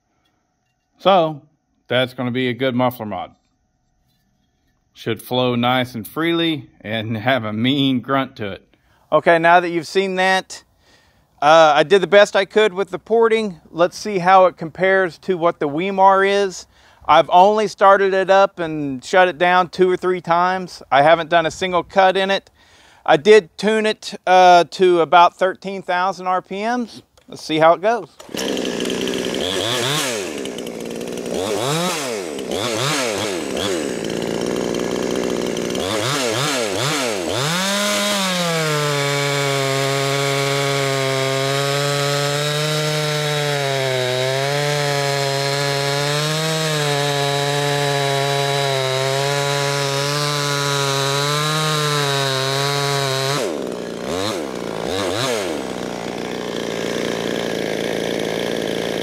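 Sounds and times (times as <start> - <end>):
chainsaw revving and cutting: 28.2 - 59.0.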